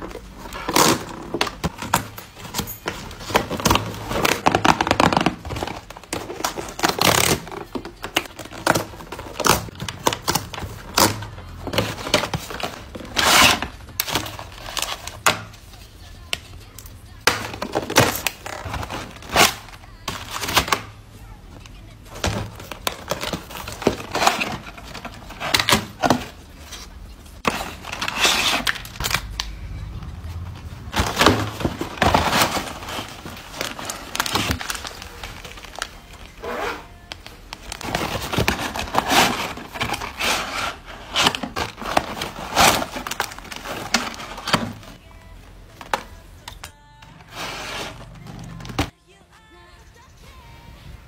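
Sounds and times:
packaging rustling and crinkling: 21.7s - 45.0s.

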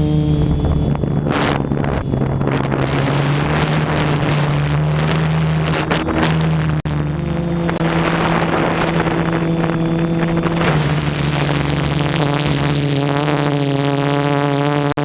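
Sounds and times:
quadcopter motors humming: 0.0s - 15.0s
wind noise on microphone: 0.0s - 15.0s.

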